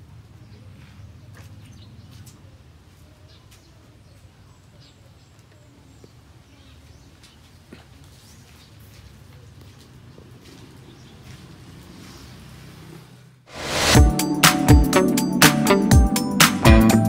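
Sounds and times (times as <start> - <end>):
birds chirping: 0.4 - 2.5, 3.1 - 12.4.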